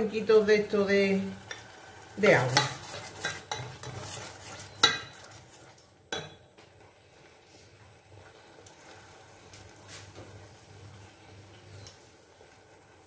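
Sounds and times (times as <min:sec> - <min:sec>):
spatula stirring sauce in saucepan: 0:01.3 - 0:11.2.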